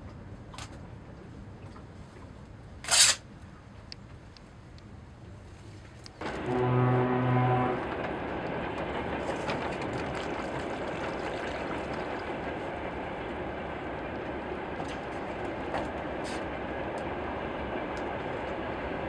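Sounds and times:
loud horn blast: 0:06.2 - 0:08.0.

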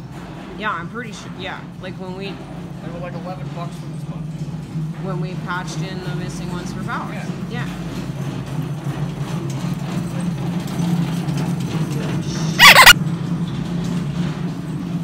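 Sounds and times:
store interior hum: 0:00.0 - 0:13.0
brief loud squeal: 0:12.3 - 0:13.0.

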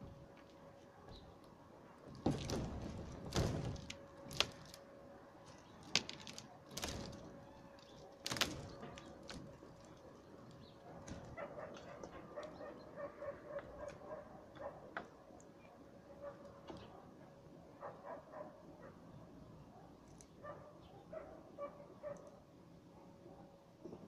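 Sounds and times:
thumps on roofing sheets: 0:02.1 - 0:04.8.

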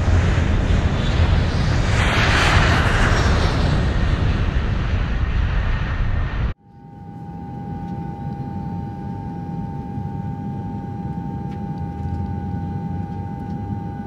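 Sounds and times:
constant engine whine: 0:00.0 - 0:14.0
jet engine rumble: 0:00.0 - 0:14.0.

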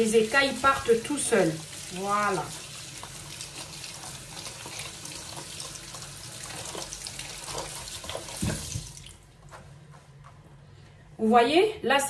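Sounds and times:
water running from a tap: 0:00.0 - 0:09.2.

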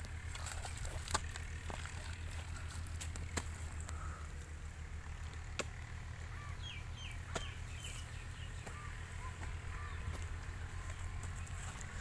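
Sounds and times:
steady low rumble: 0:00.0 - 0:12.0
hoe chopping into wet soil: 0:00.6 - 0:02.0, 0:02.9 - 0:03.7, 0:05.4 - 0:05.8, 0:07.3 - 0:07.6
small bird chirping: 0:06.3 - 0:12.0.

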